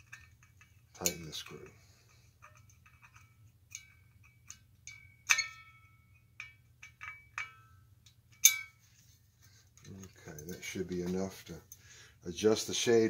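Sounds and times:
metal lamp shade ringing: 0:00.0 - 0:09.1.

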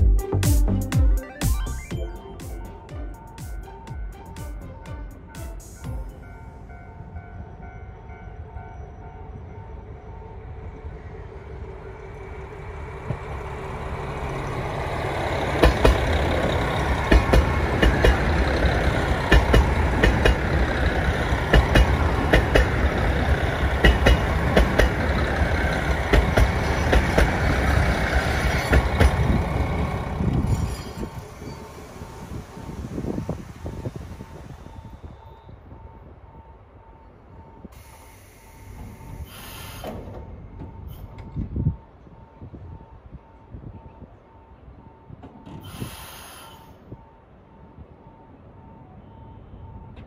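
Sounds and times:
diesel train rumble: 0:00.0 - 0:50.0
wheels clicking over rail joints: 0:14.3 - 0:31.3.

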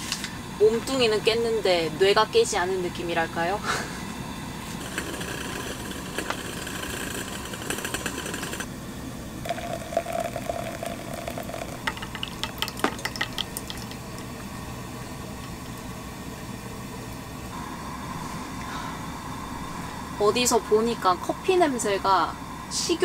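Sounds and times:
coffee grinder rattling: 0:04.7 - 0:08.7, 0:09.5 - 0:13.4.

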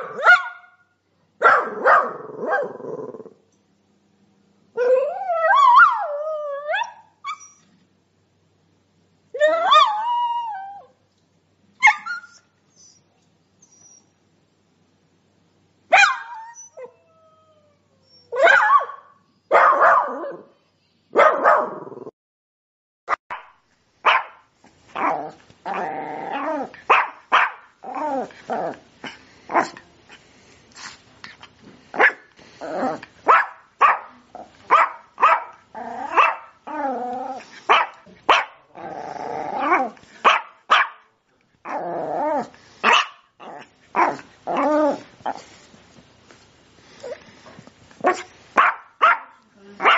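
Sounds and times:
dog barking and yelping: 0:00.0 - 0:00.8, 0:01.4 - 0:02.9, 0:09.4 - 0:10.6, 0:11.8 - 0:12.5, 0:15.9 - 0:17.0, 0:18.2 - 0:20.6, 0:21.2 - 0:21.9, 0:23.1 - 0:24.4, 0:25.0 - 0:28.8, 0:32.0 - 0:38.7, 0:39.6 - 0:41.1, 0:41.7 - 0:45.4, 0:48.0 - 0:49.9.

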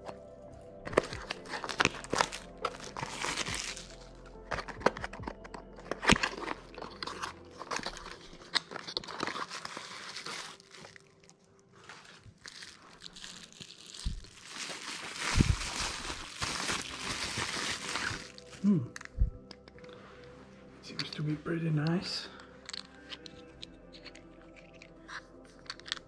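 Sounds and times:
soft background music: 0:00.0 - 0:26.0
plastic bubble wrap crinkling: 0:00.9 - 0:19.1.

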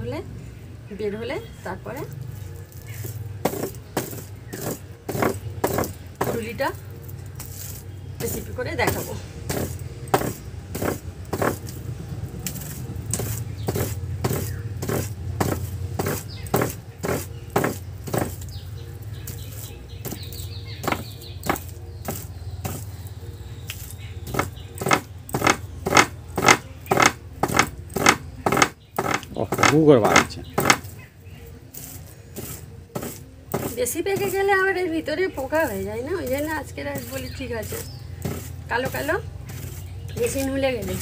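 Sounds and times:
hands kneading fruit fibres: 0:01.3 - 0:41.0
short scraping strokes: 0:07.4 - 0:11.8, 0:12.5 - 0:18.5, 0:31.7 - 0:34.4, 0:37.0 - 0:41.0.

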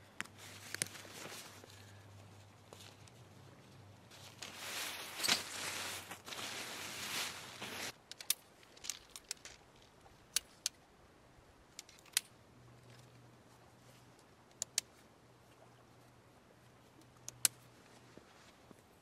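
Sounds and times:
tent poles and clips clicking: 0:00.2 - 0:02.0, 0:04.1 - 0:10.9, 0:11.7 - 0:13.2, 0:14.0 - 0:15.0, 0:16.9 - 0:18.7
nylon fabric rustling: 0:04.1 - 0:08.0.

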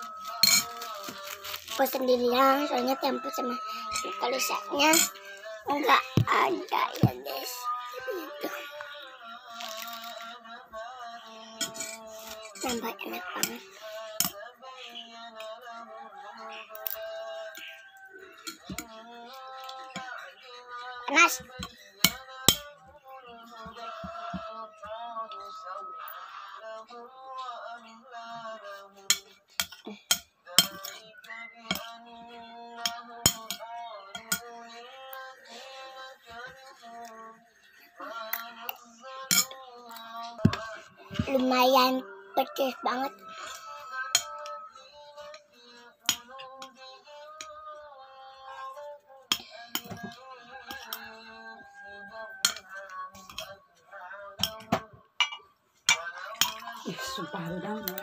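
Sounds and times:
background music: 0:00.0 - 0:58.0
song playing quietly: 0:00.0 - 0:58.0
spoon clinking on plate: 0:00.3 - 0:01.4, 0:54.4 - 0:57.1.

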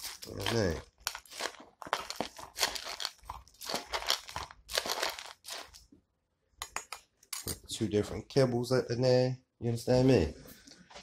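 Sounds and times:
dry kibble rattling into a bowl: 0:00.0 - 0:05.8.

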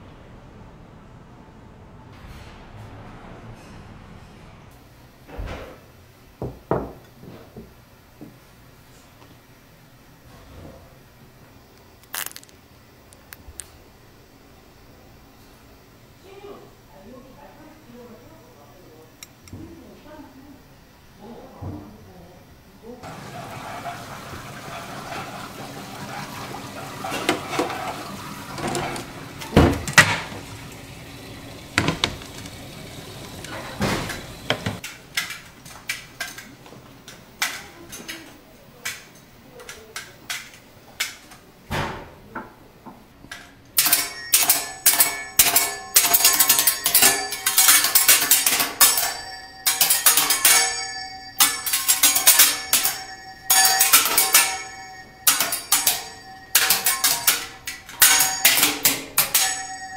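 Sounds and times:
metal spatulas clattering on griddle: 0:23.1 - 0:30.6, 0:43.8 - 0:59.9.

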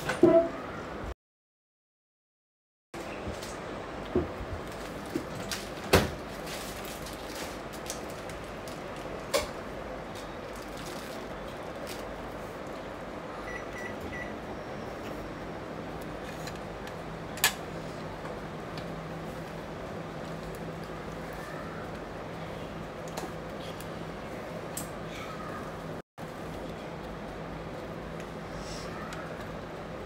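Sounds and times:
microwave oven beeps: 0:13.4 - 0:15.0.

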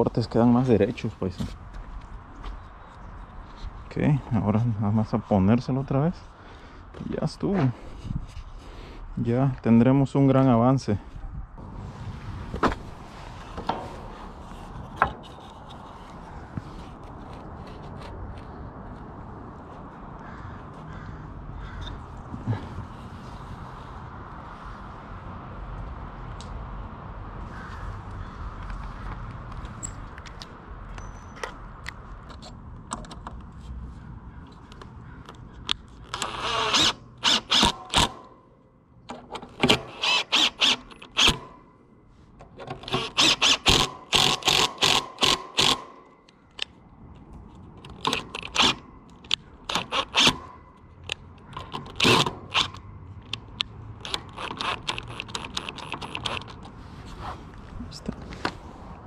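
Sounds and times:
impact driver driving screws: 0:36.2 - 0:38.2, 0:39.6 - 0:41.5, 0:42.8 - 0:46.0, 0:48.0 - 0:48.8, 0:49.7 - 0:50.5, 0:51.6 - 0:52.8, 0:54.0 - 0:56.6.

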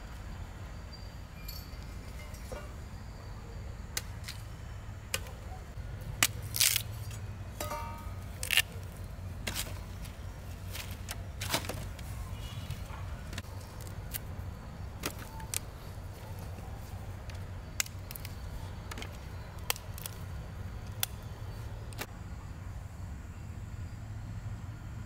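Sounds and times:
steady low hum: 0:00.0 - 0:25.0
sharp knocks and cracks: 0:15.0 - 0:15.7.

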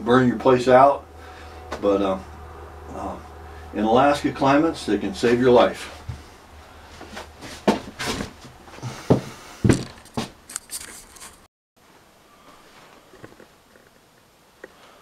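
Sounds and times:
knocks and rustles from handling: 0:07.0 - 0:11.4.

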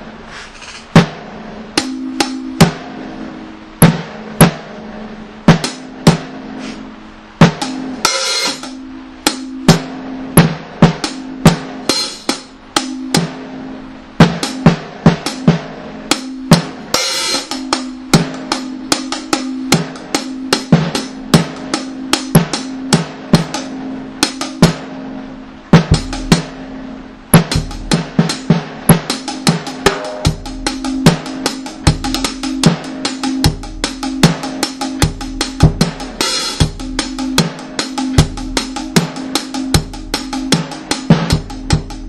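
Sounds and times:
drum kit beat: 0:00.0 - 0:42.0
cymbal crashes: 0:00.5 - 0:25.1
deep bass thuds: 0:25.7 - 0:26.6, 0:35.0 - 0:37.0.

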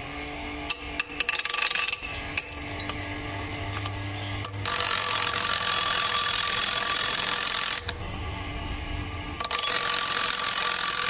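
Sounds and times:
grinder wheel grinding steel: 0:00.0 - 0:11.0
motor whine: 0:00.0 - 0:11.0.

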